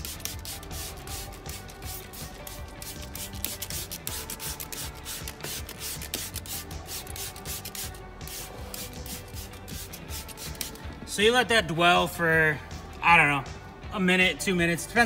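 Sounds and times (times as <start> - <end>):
spray bottle squirting: 0.0 - 10.9.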